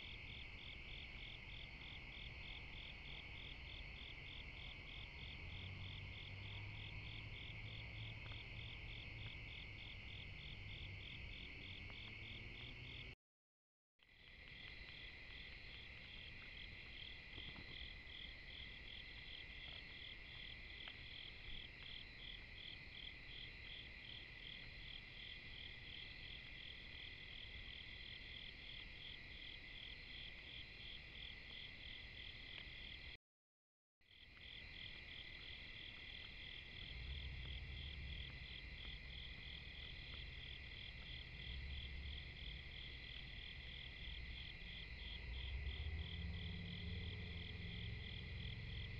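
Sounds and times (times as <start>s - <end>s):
crickets and katydids trilling: 34.2s - 48.9s.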